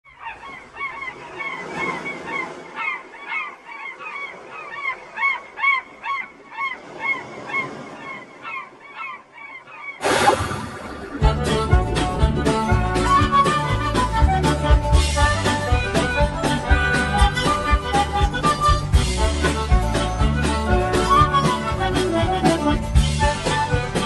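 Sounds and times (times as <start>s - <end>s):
seagulls crying: 0.1s - 24.0s
music: 11.2s - 24.0s.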